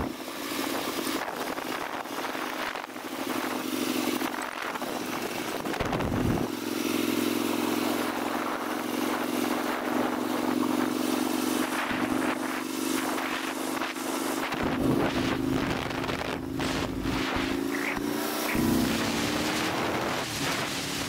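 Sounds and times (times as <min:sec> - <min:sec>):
motorcycle engine running: 0:00.0 - 0:21.0
wind buffeting microphone: 0:00.0 - 0:21.0
loud wind rush: 0:04.2 - 0:21.0.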